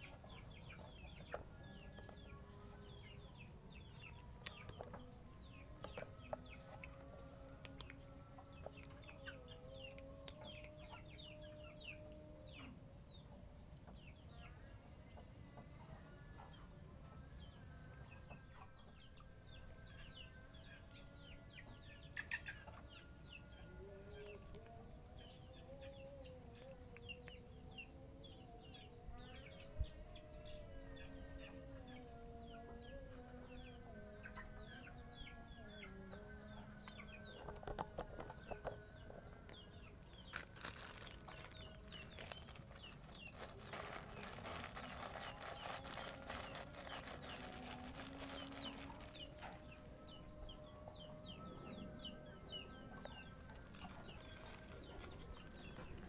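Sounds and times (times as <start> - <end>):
small birds chirping: 19.8 - 56.0
plastic bag crinkling: 40.2 - 49.7, 53.4 - 56.0.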